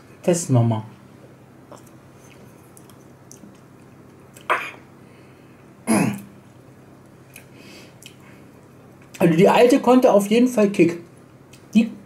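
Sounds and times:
man clearing throat: 0:04.5 - 0:04.8, 0:05.9 - 0:06.3.

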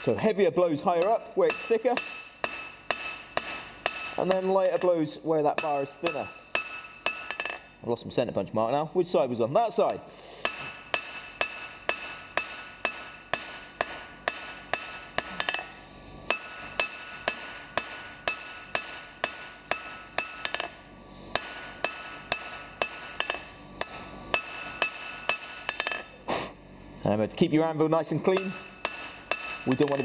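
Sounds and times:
hammer striking steel on anvil: 0:00.9 - 0:07.7, 0:09.8 - 0:26.1, 0:28.2 - 0:30.0.

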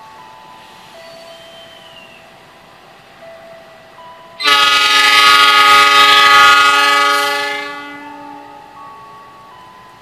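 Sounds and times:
locomotive air horn: 0:04.4 - 0:08.6.

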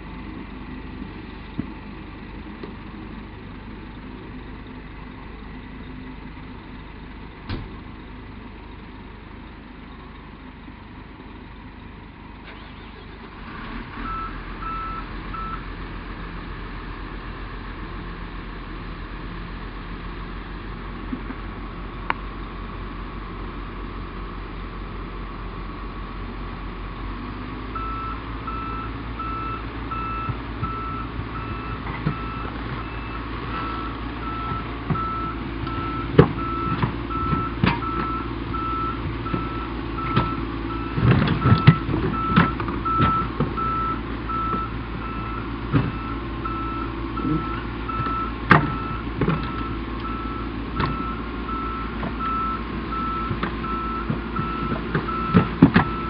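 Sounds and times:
diesel engine running under load: 0:00.0 - 0:56.0
reversing alarm beeping: 0:14.0 - 0:15.6, 0:27.8 - 0:56.0.

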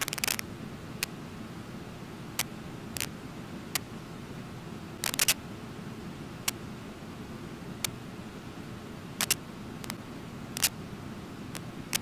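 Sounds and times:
sharp clicks: 0:05.0 - 0:05.4, 0:09.2 - 0:10.0, 0:10.6 - 0:10.8, 0:11.6 - 0:12.0.

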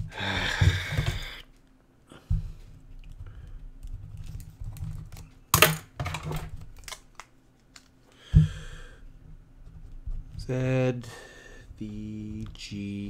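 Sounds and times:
short breath: 0:08.1 - 0:09.1, 0:11.0 - 0:11.8.

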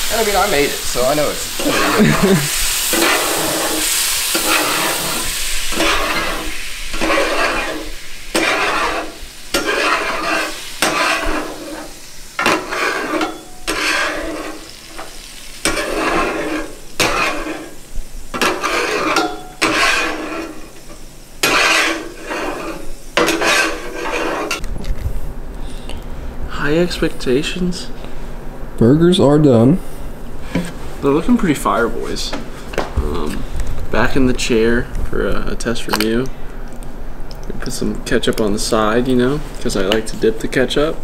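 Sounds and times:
patties sizzling on griddle: 0:00.0 - 0:24.6
metal spatula scraping griddle: 0:00.4 - 0:24.6.

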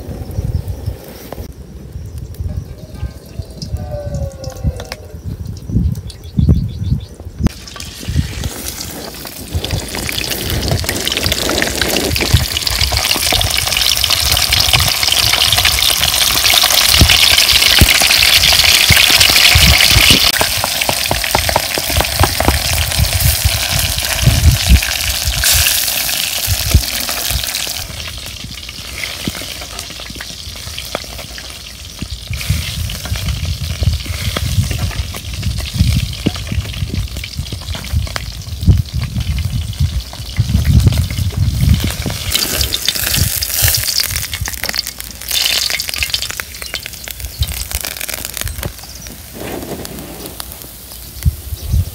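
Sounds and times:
fish sizzling in hot oil: 0:07.5 - 0:51.9.

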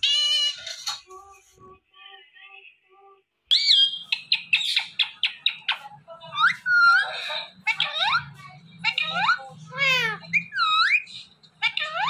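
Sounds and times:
parakeet chirping and whistling: 0:03.5 - 0:07.2, 0:07.8 - 0:12.0.

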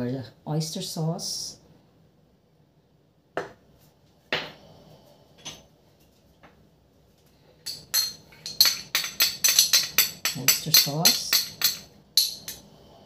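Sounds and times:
ceramic dish clinking on glass: 0:07.7 - 0:12.6.

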